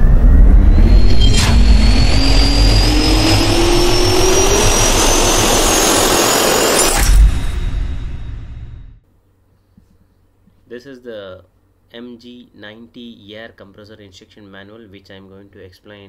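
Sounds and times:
loud rumble: 0:00.0 - 0:09.0
rising turbine whine: 0:00.0 - 0:09.0
sharp hit: 0:00.0 - 0:09.0.

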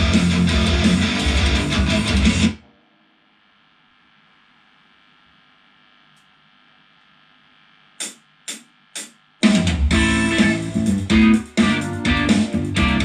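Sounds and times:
guitar and bass backing track: 0:00.0 - 0:02.6, 0:09.7 - 0:13.0
sound system hum: 0:00.0 - 0:13.0.

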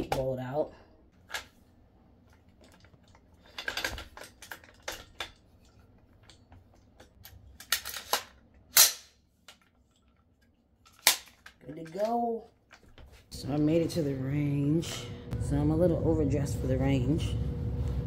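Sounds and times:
rifle parts clicking and clacking: 0:02.3 - 0:13.1.

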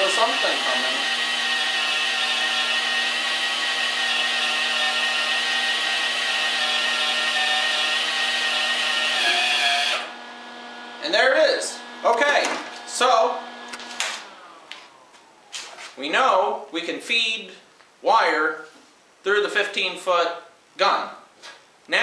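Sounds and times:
welder wire-feed motor whine: 0:00.0 - 0:16.0.

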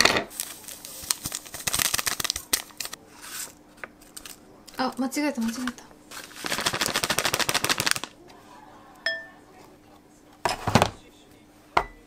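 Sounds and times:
kitchenware clattering: 0:10.4 - 0:11.0, 0:11.8 - 0:12.0.

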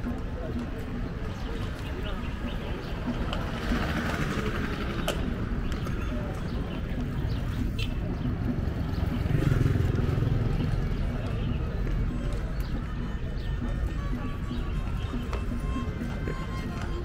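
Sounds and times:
traffic rumble: 0:00.0 - 0:17.0
vehicle engine: 0:06.9 - 0:12.6.

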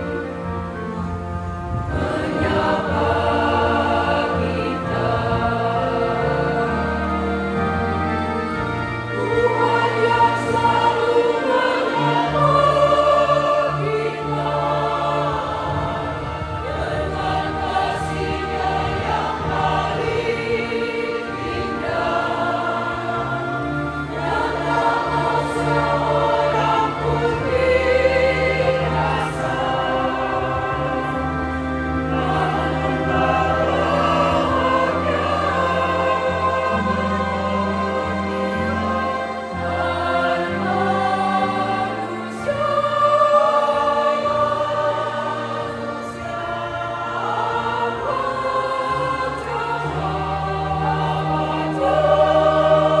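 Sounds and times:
choir singing: 0:00.0 - 0:53.0.

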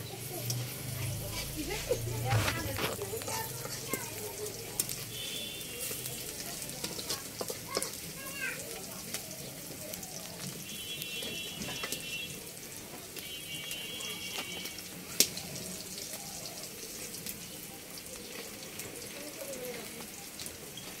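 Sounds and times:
onions sizzling in oil: 0:00.0 - 0:21.0
spatula stirring: 0:00.3 - 0:08.2.

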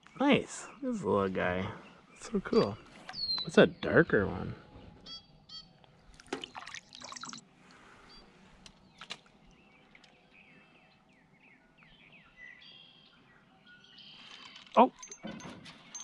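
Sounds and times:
faint birdsong chirps: 0:00.0 - 0:16.0
fish splashing in water: 0:06.1 - 0:07.5.

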